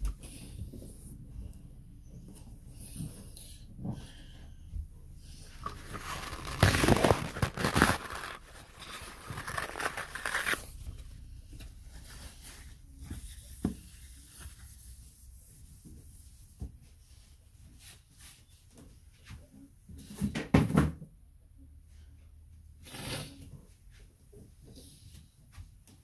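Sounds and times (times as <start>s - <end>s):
paper towel tearing and crinkling: 5.5s - 10.8s.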